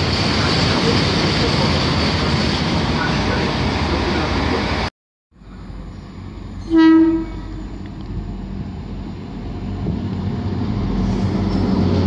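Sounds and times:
train engine and wheel noise: 0:00.0 - 0:12.0
train horn blast: 0:06.6 - 0:07.8.

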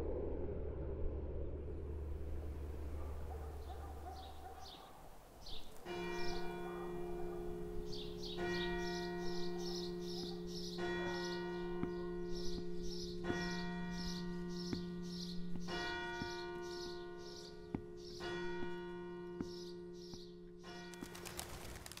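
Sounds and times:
bells ringing: 0:05.5 - 0:21.5.

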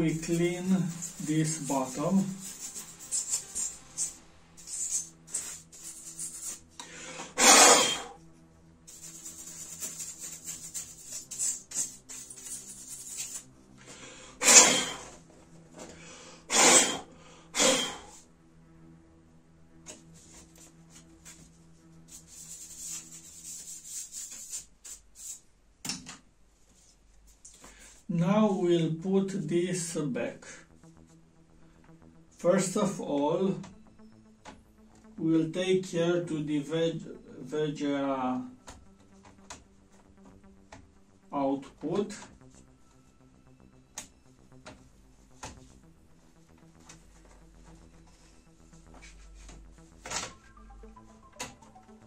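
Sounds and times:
faint background music: 0:00.0 - 0:52.0
brush scrubbing plastic: 0:00.1 - 0:06.7, 0:08.9 - 0:13.5, 0:22.0 - 0:25.4
scratchy rubbing on plastic: 0:00.2 - 0:06.7, 0:07.3 - 0:08.1, 0:08.9 - 0:13.5, 0:19.9 - 0:25.4.

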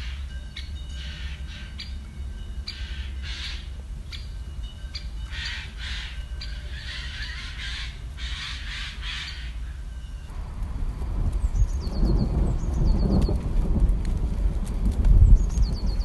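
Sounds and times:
woodpecker calls: 0:00.0 - 0:02.0, 0:02.6 - 0:10.3.

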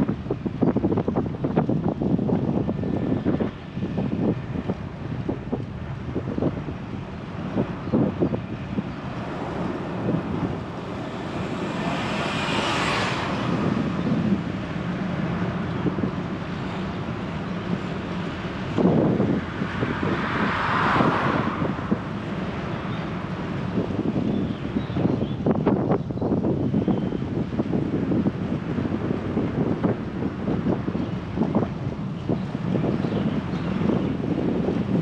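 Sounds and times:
road and wind rumble: 0:00.0 - 0:35.0
vehicles passing by: 0:00.0 - 0:35.0.

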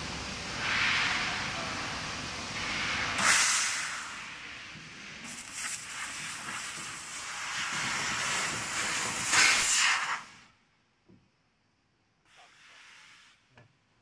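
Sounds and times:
laser cutter hissing: 0:02.6 - 0:04.2, 0:05.2 - 0:10.4.

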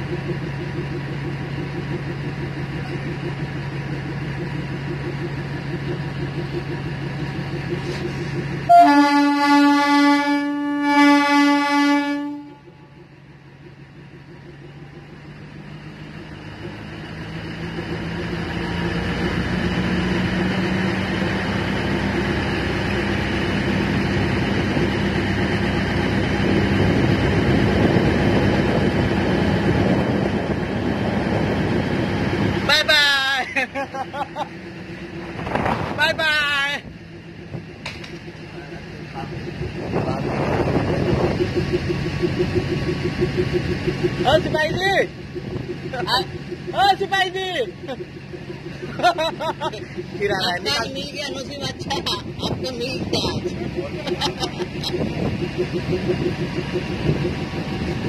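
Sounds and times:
diesel engine drone: 0:00.0 - 0:58.0
train horn blasts: 0:08.7 - 0:12.9.

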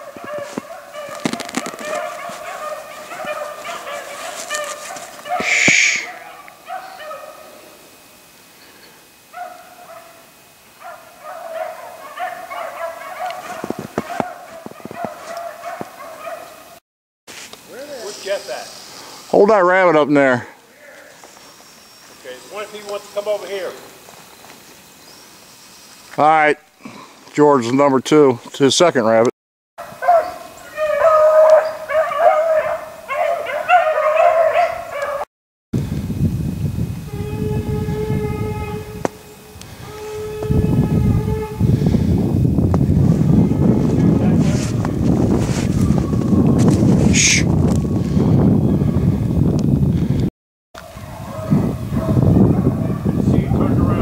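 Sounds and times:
hounds baying: 0:00.0 - 0:07.8, 0:09.3 - 0:16.8, 0:29.8 - 0:35.3, 0:50.8 - 0:54.0.

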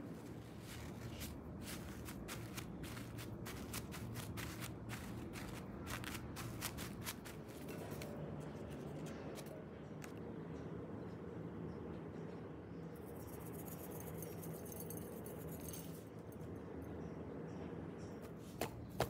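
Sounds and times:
paper towel crinkling: 0:00.0 - 0:08.1.

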